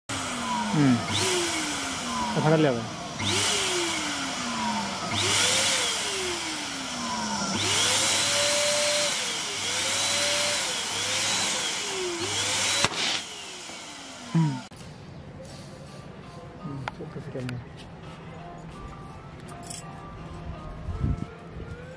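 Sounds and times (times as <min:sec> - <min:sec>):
electric balloon pump motor: 0:00.1 - 0:14.7
sharp snap: 0:12.8 - 0:13.3.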